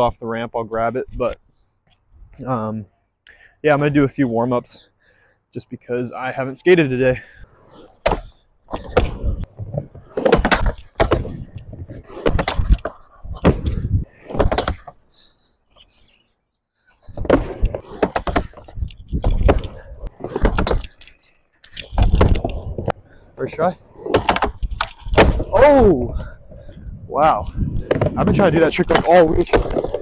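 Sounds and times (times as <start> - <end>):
skateboard wheels rumbling on wood: 8.1 - 14.9, 17.0 - 21.0, 27.6 - 30.0
skateboard knocking on ramp: 27.8 - 30.0.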